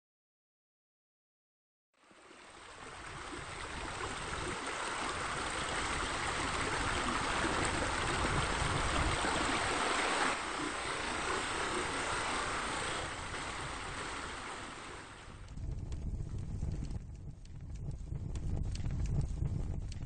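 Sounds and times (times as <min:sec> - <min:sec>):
water splashing from waterfall: 0:02.0 - 0:15.5.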